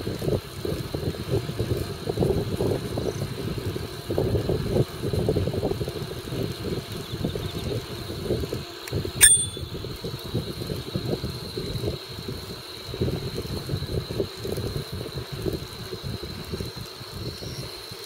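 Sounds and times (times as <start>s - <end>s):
wind rumbling on microphone: 0.0s - 17.7s
bicycle bell ding: 9.2s - 9.7s.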